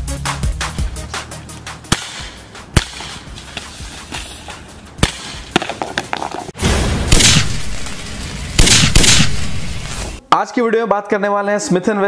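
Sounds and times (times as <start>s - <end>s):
background music: 0.0s - 12.0s
air pistol shots hitting cans: 1.9s - 3.2s, 5.0s - 5.8s, 7.1s - 7.6s, 8.6s - 9.6s.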